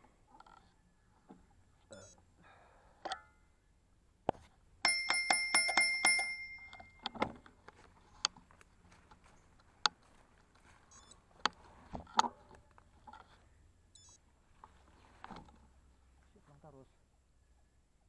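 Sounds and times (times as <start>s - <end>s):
bicycle bell ringing rapidly: 4.8s - 7.0s.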